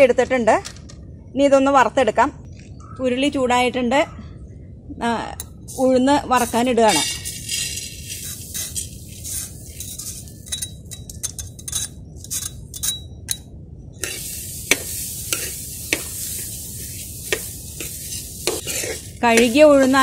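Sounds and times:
lentils sizzling in pan: 0:05.7 - 0:10.8, 0:14.0 - 0:20.0
ladle scraping strainer: 0:06.4 - 0:13.0, 0:14.0 - 0:20.0.

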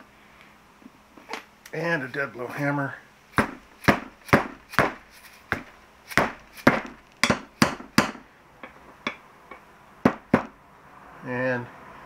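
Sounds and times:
hammer striking rubber bushing: 0:03.3 - 0:10.6.

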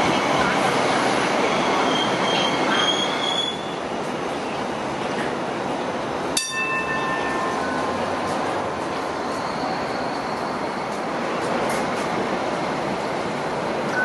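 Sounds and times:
light rail car running past: 0:00.0 - 0:14.0
high wheel squeal: 0:01.5 - 0:03.8, 0:09.2 - 0:10.7.

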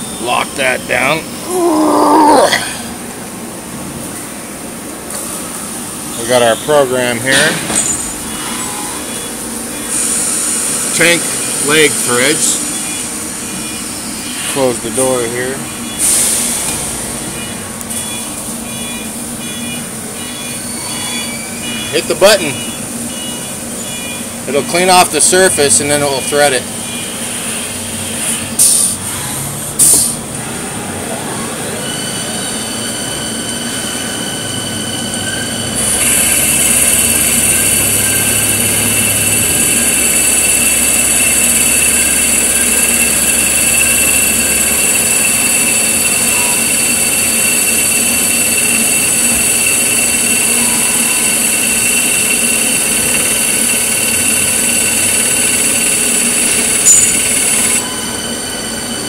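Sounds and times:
lathe spindle whine: 0:05.5 - 0:28.4, 0:31.4 - 0:59.0
cutting tool hiss: 0:35.8 - 0:57.8.

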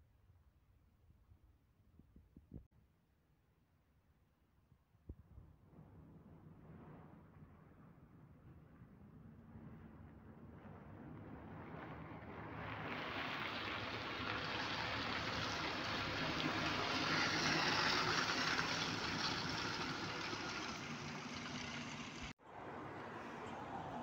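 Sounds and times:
bus driving past: 0:11.1 - 0:24.0.

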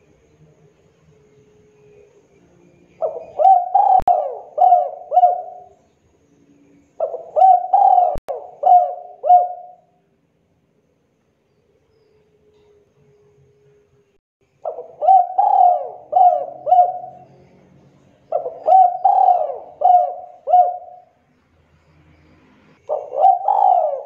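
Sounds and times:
dove cooing: 0:03.0 - 0:05.8, 0:07.0 - 0:10.0, 0:14.6 - 0:17.4, 0:18.3 - 0:21.2, 0:22.9 - 0:24.0.

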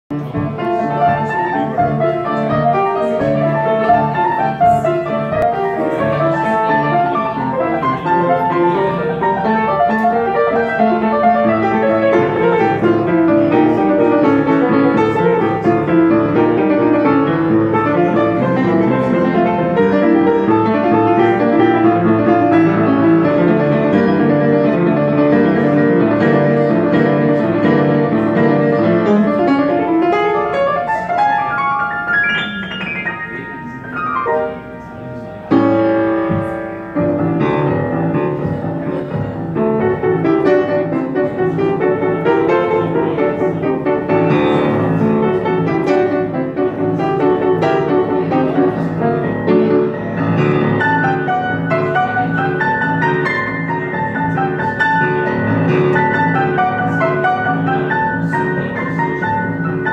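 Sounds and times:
solo piano playing: 0:00.1 - 0:59.9.

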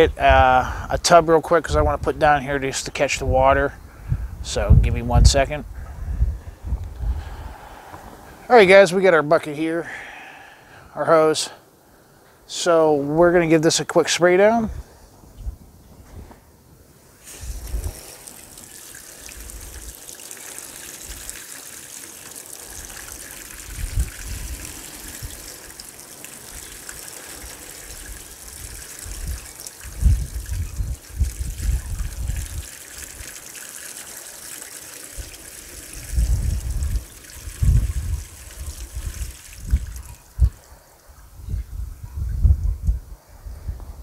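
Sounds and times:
wind rumble on microphone: 0:00.0 - 0:01.0, 0:03.2 - 0:08.4, 0:14.6 - 0:16.4, 0:17.3 - 0:18.1, 0:23.5 - 0:25.6, 0:27.8 - 0:33.2, 0:35.9 - 0:44.0
hose spraying water on door: 0:17.2 - 0:40.0
water pattering into plastic tub: 0:17.3 - 0:40.2.

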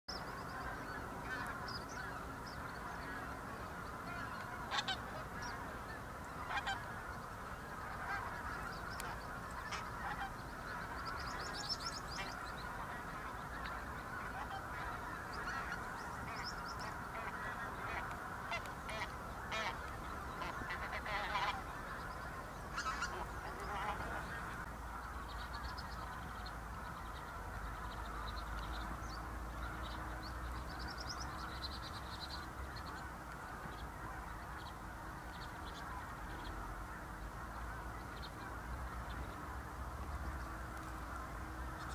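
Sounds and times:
geese honking: 0:00.4 - 0:28.9.

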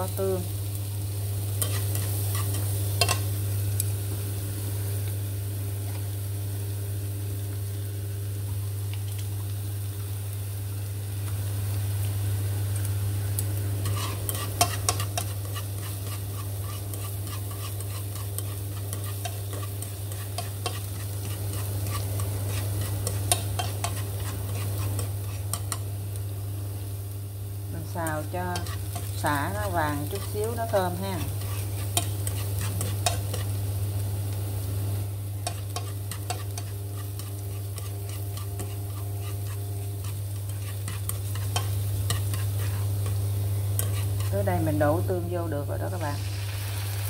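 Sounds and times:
steady low hum: 0:00.0 - 0:46.3
food sizzling in hot oil: 0:00.0 - 0:47.0
chopsticks clicking and scraping pan: 0:01.6 - 0:03.3, 0:13.4 - 0:25.9, 0:27.9 - 0:33.6, 0:35.4 - 0:44.8.

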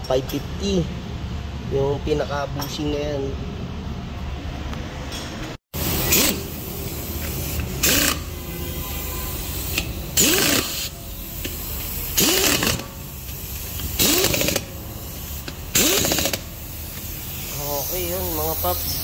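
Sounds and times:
impact wrench rattling: 0:05.9 - 0:08.3, 0:09.6 - 0:18.4.

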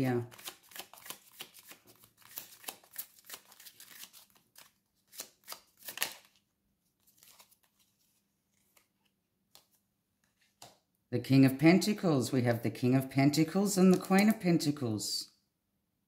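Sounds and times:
cards being shuffled: 0:00.2 - 0:10.8, 0:13.8 - 0:14.4.

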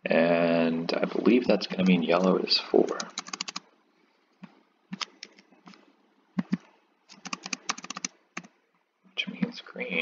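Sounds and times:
computer keyboard clicks: 0:02.9 - 0:03.6, 0:06.4 - 0:08.5.

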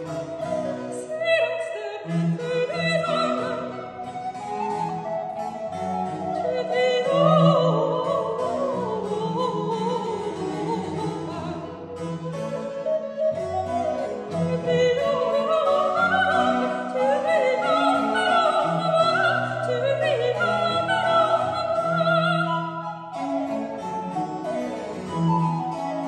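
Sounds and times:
cello: 0:00.0 - 0:26.0
flute: 0:00.0 - 0:26.0
woman singing with vibrato: 0:00.9 - 0:03.9, 0:06.3 - 0:11.9, 0:14.2 - 0:23.2.

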